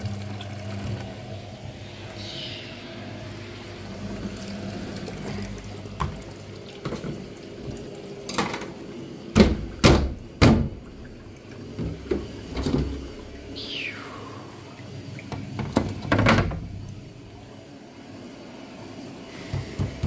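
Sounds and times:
low watery noise: 0:00.0 - 0:20.0
washing machine casing knocks: 0:09.3 - 0:10.8, 0:15.6 - 0:16.7.

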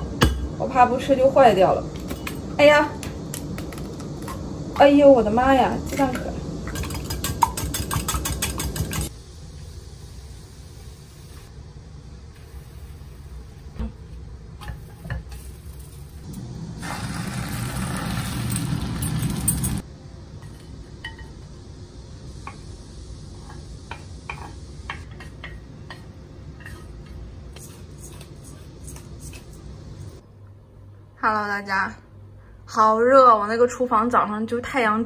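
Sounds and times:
egg sizzling in hot oil: 0:14.6 - 0:19.2.

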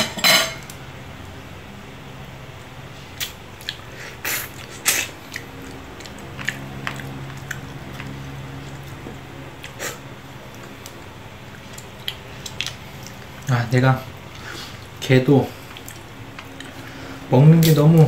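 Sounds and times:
chewing: 0:03.2 - 0:13.5, 0:14.3 - 0:17.0.

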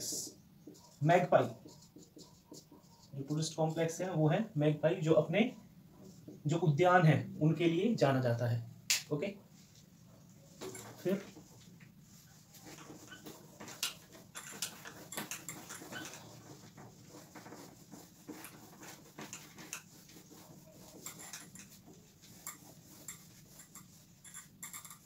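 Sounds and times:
duster rubbing on whiteboard: 0:00.0 - 0:04.0, 0:10.5 - 0:25.0.

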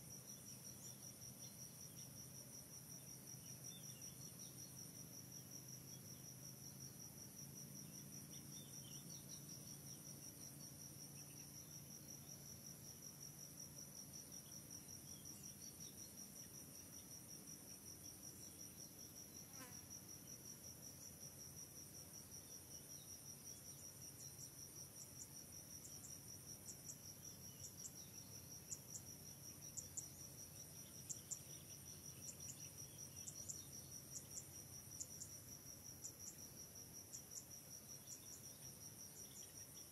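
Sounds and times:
insects trilling: 0:00.0 - 0:39.9.

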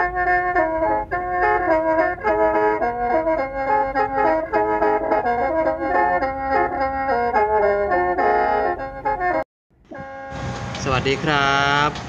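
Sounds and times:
instrumental background music: 0:00.0 - 0:10.9.

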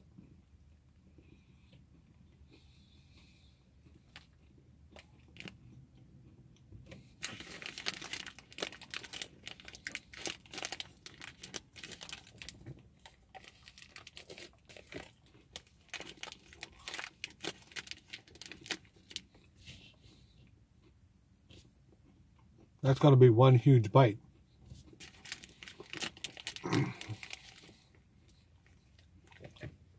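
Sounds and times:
plastic wrapper crinkling: 0:07.2 - 0:19.3, 0:24.9 - 0:27.8.

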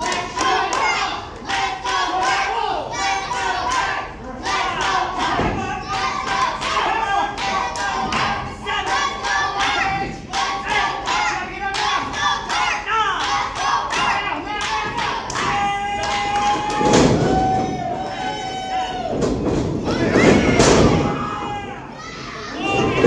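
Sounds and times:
crowd clapping in rhythm: 0:00.0 - 0:02.6, 0:04.8 - 0:16.9
crowd shouting and chanting: 0:00.0 - 0:23.0.

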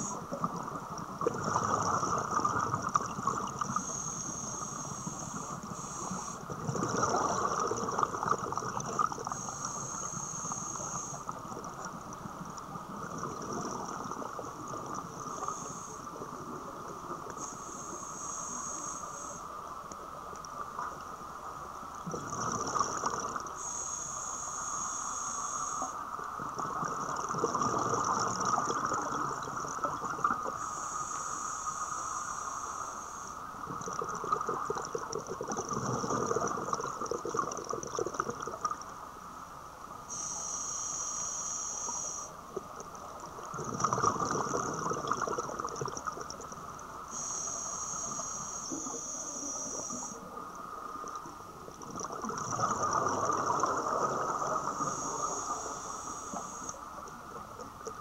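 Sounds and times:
exhaled bubbles rushing: 0:00.0 - 0:03.8, 0:06.5 - 0:09.4, 0:12.9 - 0:15.4, 0:22.0 - 0:23.5, 0:26.4 - 0:30.6, 0:33.7 - 0:38.8, 0:43.4 - 0:46.6, 0:51.8 - 0:55.1
steady hum: 0:00.0 - 0:33.8, 0:38.9 - 0:43.5, 0:46.4 - 0:58.0
regulator hissing inhales: 0:03.7 - 0:06.4, 0:17.4 - 0:19.5, 0:23.6 - 0:26.0, 0:30.6 - 0:33.4, 0:40.1 - 0:42.4, 0:47.1 - 0:50.2, 0:54.7 - 0:56.8.

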